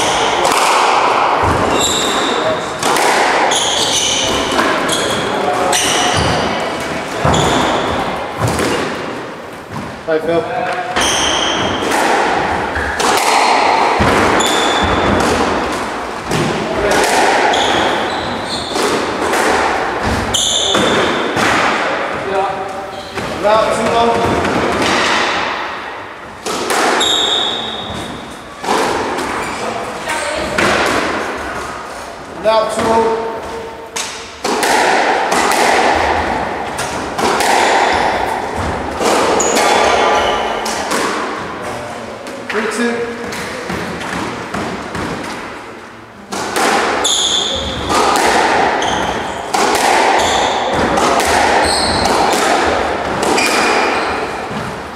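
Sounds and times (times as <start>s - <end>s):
squash ball impacts: 0.0s - 29.6s, 30.3s - 54.9s
shoes squeaking on wooden floor: 1.4s - 2.7s, 3.4s - 8.8s, 17.5s - 19.2s, 20.0s - 21.2s, 22.6s - 23.4s, 27.0s - 28.6s, 38.5s - 40.7s, 47.0s - 47.8s, 48.8s - 49.5s, 50.2s - 50.8s, 51.6s - 52.3s.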